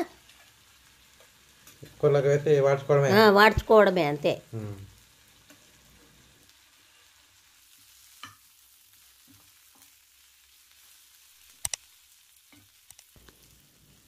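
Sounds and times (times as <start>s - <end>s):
leaves sizzling in oil: 0.0s - 14.0s
spoon knocking against pan: 8.2s - 8.4s.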